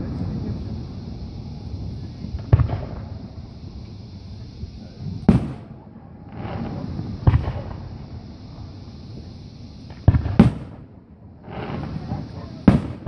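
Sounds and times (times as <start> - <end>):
firework shells booming: 0.0 - 13.0.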